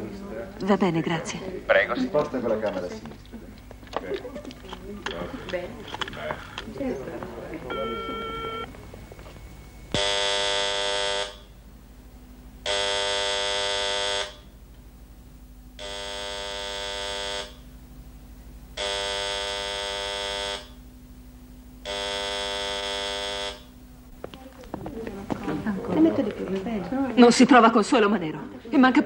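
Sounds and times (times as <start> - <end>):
steady low hum: 0.0 - 29.0
telephone buzzer ringing: 4.6 - 11.6, 12.5 - 14.6, 15.7 - 17.7, 18.7 - 23.8.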